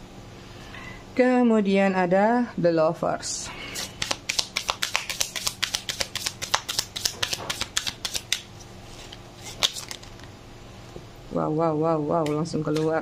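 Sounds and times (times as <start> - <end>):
sharp card snap: 3.8 - 8.5
cards being shuffled: 3.8 - 10.2.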